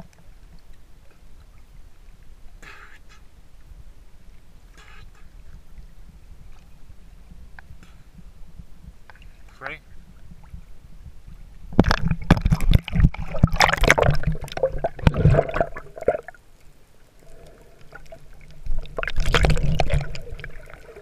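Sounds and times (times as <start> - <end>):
water splashing and gurgling: 4.6 - 21.0.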